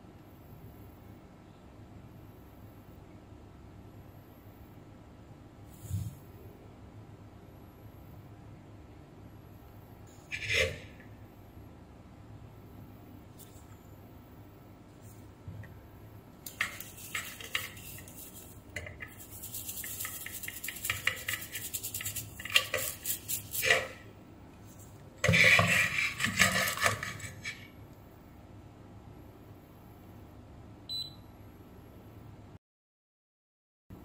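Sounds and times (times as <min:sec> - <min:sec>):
brush scrubbing circuit board: 0:10.3 - 0:11.0, 0:16.5 - 0:24.1, 0:24.7 - 0:27.6.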